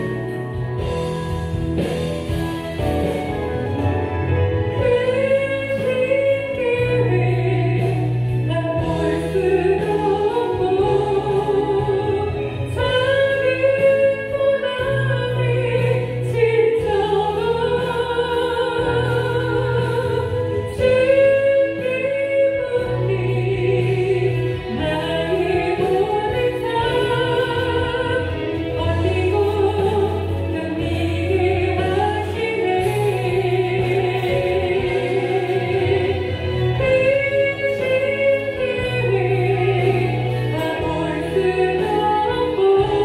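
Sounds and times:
instrumental accompaniment: 0.0 - 43.0
woman singing with vibrato: 3.9 - 43.0.

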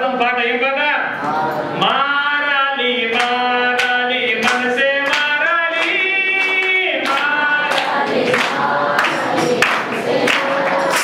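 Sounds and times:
man singing: 0.0 - 7.9
voices singing along: 1.2 - 11.0
hands clapping: 3.1 - 11.0.

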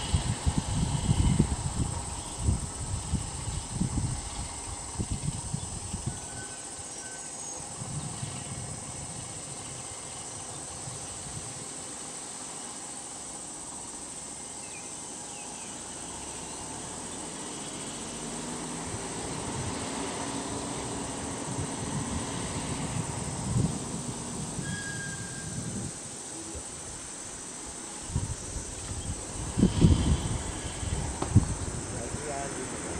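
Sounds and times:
insects droning: 0.0 - 32.9
low engine hum: 15.0 - 26.0.

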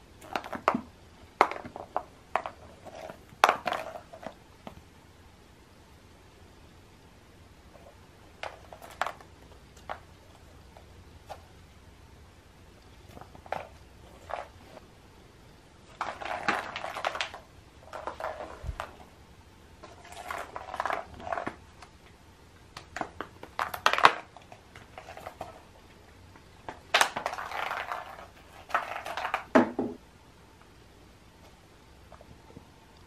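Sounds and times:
plastic eggs clattering and rolling: 0.1 - 4.8, 7.8 - 11.5, 13.0 - 14.8, 15.8 - 19.2, 19.8 - 22.0, 22.6 - 30.0.

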